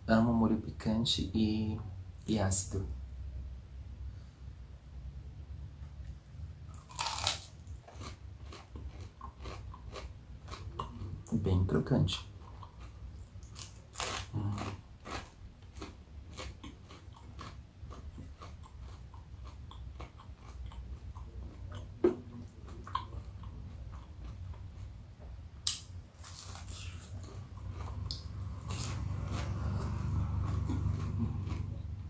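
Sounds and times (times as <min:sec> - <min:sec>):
chewing crispy food: 0:06.7 - 0:25.0, 0:25.6 - 0:32.0.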